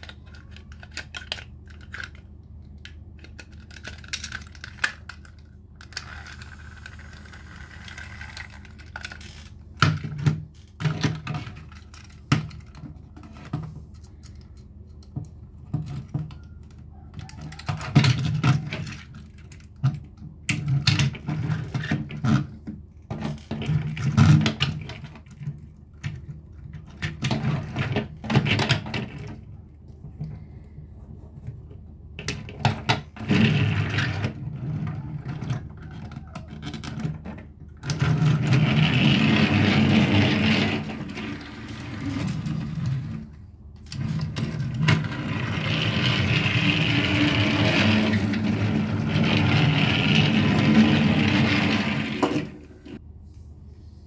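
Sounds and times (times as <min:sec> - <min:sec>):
toy train pieces clattering: 0:00.0 - 0:09.6.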